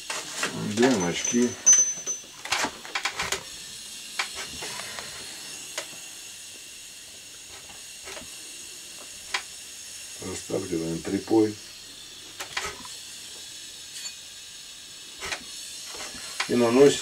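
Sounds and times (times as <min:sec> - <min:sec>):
gas torch hissing: 0:00.0 - 0:17.0.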